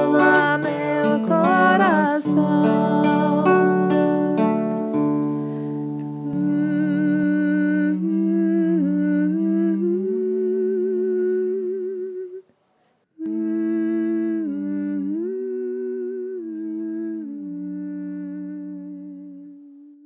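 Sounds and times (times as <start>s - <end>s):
voices humming a chant: 0.0s - 4.6s.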